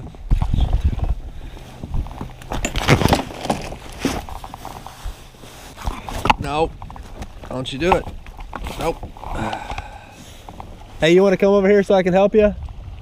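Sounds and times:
gear knocking against kayak hull: 5.8s - 9.9s.

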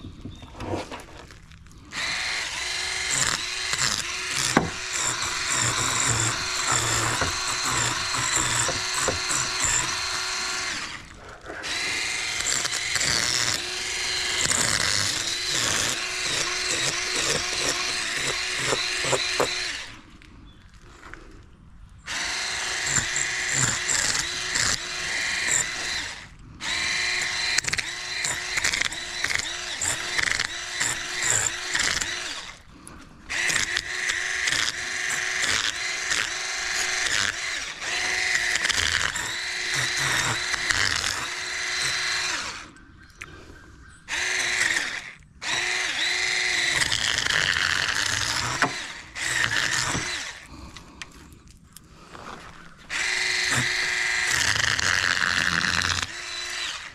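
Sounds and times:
electric fish scaler motor hum: 1.9s - 20.0s, 52.9s - 56.9s.

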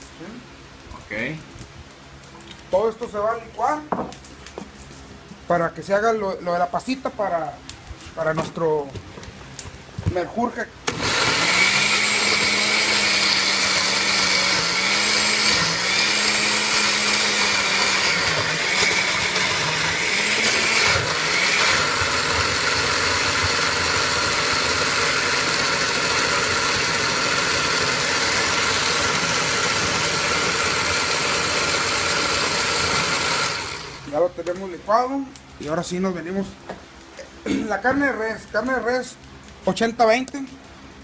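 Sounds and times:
blender running: 10.9s - 34.1s.

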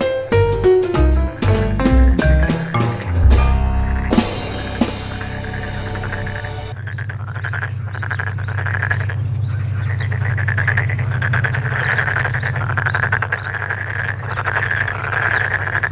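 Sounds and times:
short high downward-sweeping notes: 3.0s - 6.8s
frog croaking: 6.8s - 15.9s.

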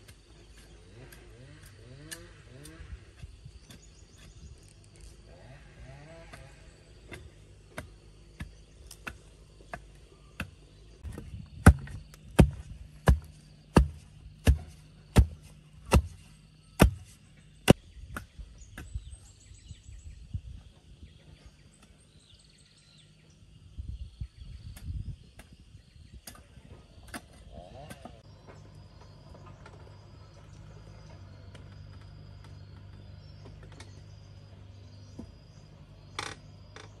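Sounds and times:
stick knocking into soil: 7.1s - 16.2s.

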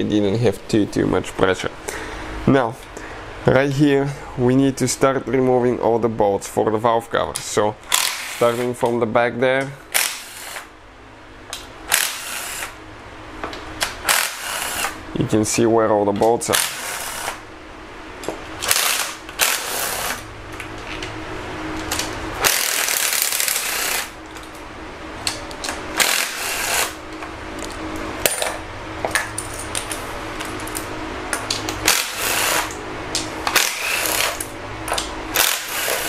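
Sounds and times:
cordless ratchet running: 7.9s - 8.7s, 9.9s - 10.7s, 11.9s - 12.8s, 14.0s - 15.0s, 16.5s - 17.4s, 18.6s - 20.2s, 21.9s - 24.1s, 26.0s - 27.0s, 31.8s - 32.8s, 33.5s - 34.5s, 35.4s - 36.0s.

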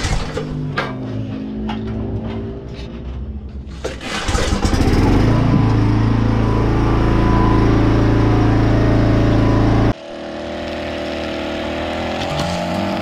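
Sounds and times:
music: 0.3s - 4.2s
lawn mower engine running: 3.8s - 13.0s
distant string trimmer: 4.0s - 13.0s.

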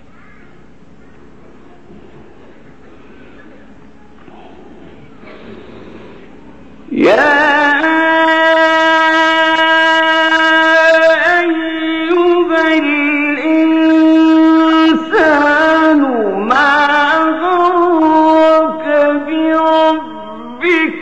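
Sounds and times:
man reciting melodically: 6.8s - 21.0s.

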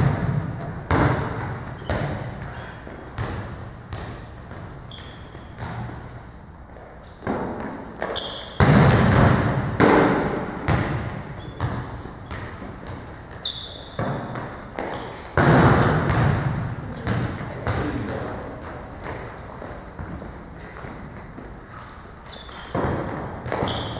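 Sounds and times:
volleyballs bouncing on gym floor: 0.0s - 21.7s, 22.3s - 23.9s
sneaker squeaks: 1.2s - 8.7s, 10.7s - 15.6s, 19.1s - 23.9s.

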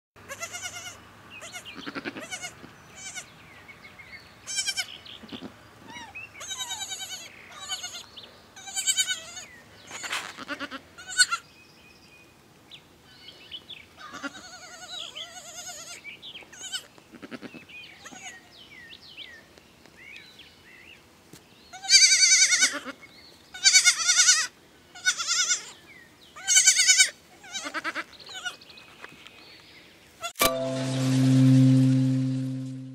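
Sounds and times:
goat kid bleating: 0.2s - 3.3s, 4.4s - 11.4s, 14.0s - 18.5s, 21.7s - 25.8s, 26.4s - 28.6s
brief loud sound: 30.4s - 32.9s.

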